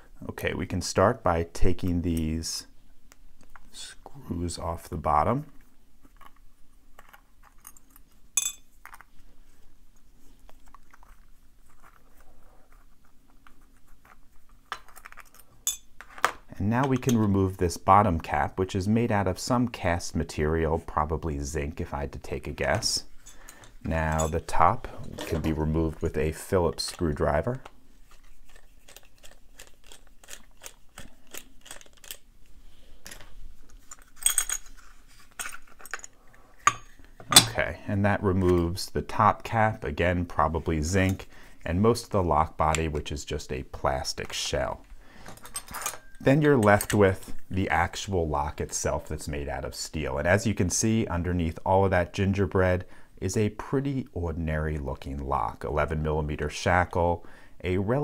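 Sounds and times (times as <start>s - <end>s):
sharp metal clink: 8.4s - 8.7s.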